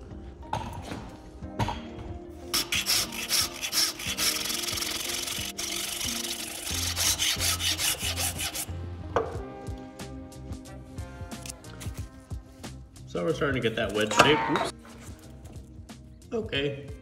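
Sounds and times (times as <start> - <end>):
background music with bass: 0.0 - 17.0
wood rasp scraping wood: 2.6 - 8.7.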